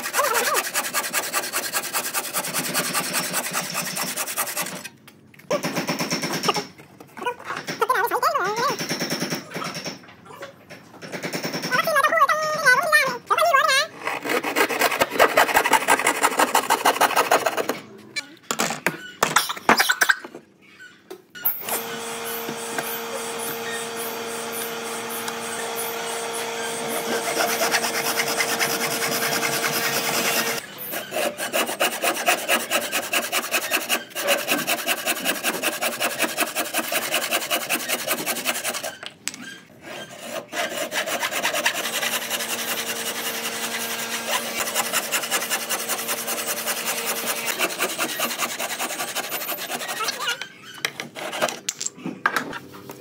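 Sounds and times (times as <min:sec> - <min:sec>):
tool rasping wood: 0:00.0 - 0:04.9, 0:14.0 - 0:17.8, 0:21.6 - 0:39.0, 0:39.8 - 0:51.6
steady hum: 0:21.6 - 0:30.8.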